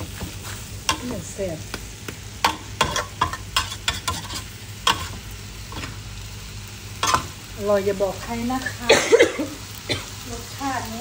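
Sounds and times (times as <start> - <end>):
low sizzle: 0.0 - 11.0
metal spatula scraping a wok: 2.5 - 6.0.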